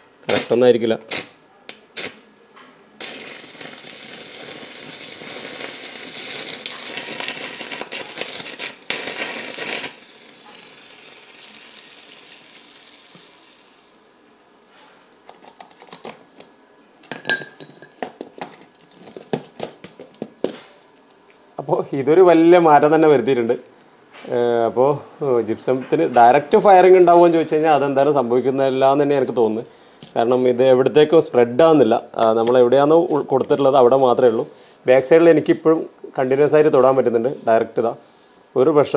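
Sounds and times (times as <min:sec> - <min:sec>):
clicks and crackles: 0:03.0 - 0:10.6, 0:15.0 - 0:16.5
blowtorch hissing: 0:03.0 - 0:14.5.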